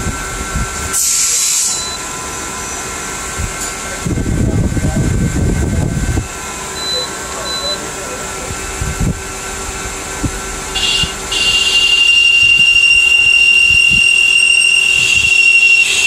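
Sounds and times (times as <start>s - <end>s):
high-pitched cutting squeal: 1.0s - 2.0s, 10.8s - 16.0s.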